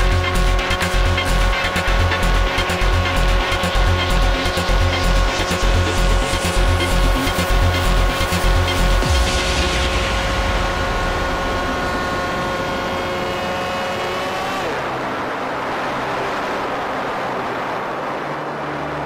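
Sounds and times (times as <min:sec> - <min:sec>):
electric motor whine: 0:00.0 - 0:15.4.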